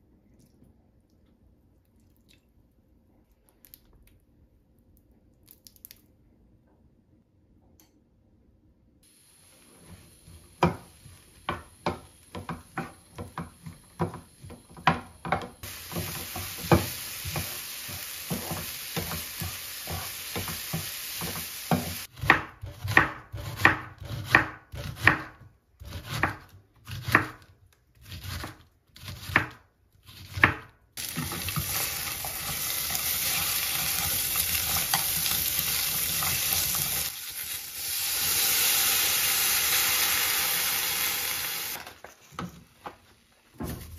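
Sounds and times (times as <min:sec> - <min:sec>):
vegetables sizzling: 0:09.0 - 0:22.2, 0:31.0 - 0:43.9
knife chopping on wooden board: 0:11.5 - 0:31.5.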